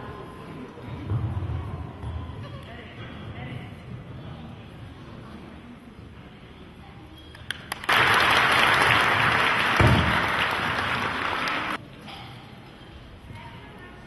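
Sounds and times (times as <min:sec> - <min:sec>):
audience applauding: 0:07.6 - 0:11.8.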